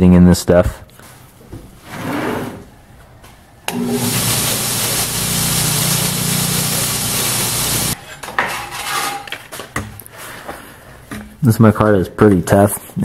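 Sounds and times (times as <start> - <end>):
belt sander grinding: 3.7 - 8.0.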